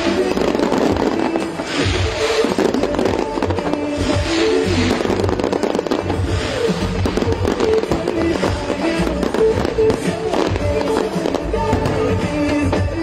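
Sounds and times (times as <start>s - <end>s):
fireworks booming and crackling: 0.0s - 13.0s
music playing: 0.0s - 13.0s.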